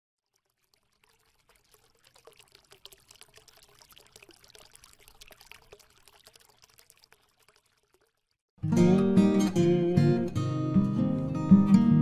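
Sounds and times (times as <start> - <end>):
liquid pouring crackle: 0.2 - 8.5.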